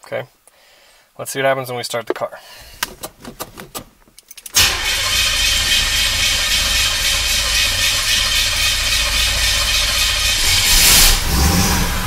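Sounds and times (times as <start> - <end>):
car engine starting and running: 4.6 - 12.0.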